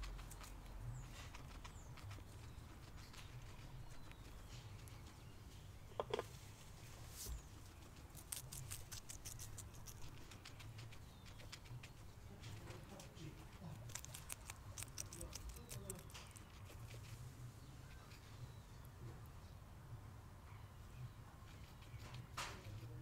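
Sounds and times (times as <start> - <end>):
guinea pig squeak: 0.0 - 6.1, 7.3 - 18.9, 20.5 - 23.0
guinea pig crunching pepper: 0.0 - 6.3, 7.4 - 18.7, 21.0 - 23.0.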